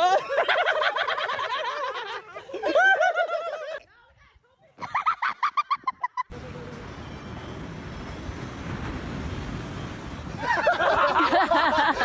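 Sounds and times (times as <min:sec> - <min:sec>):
people yelling and laughing: 0:00.0 - 0:04.1, 0:04.8 - 0:06.8, 0:10.3 - 0:12.0.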